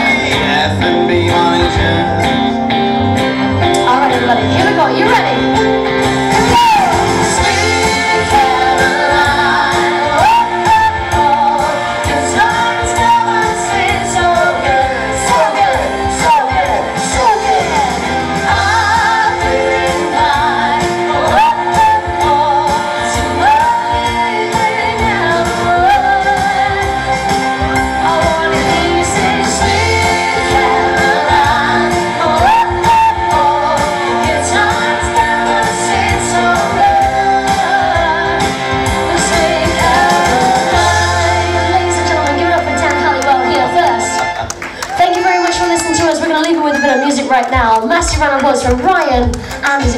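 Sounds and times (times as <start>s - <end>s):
man singing: 0.0s - 2.7s
electric guitar: 0.0s - 49.9s
keyboards: 0.0s - 49.9s
woman singing: 3.7s - 44.2s, 44.8s - 49.9s.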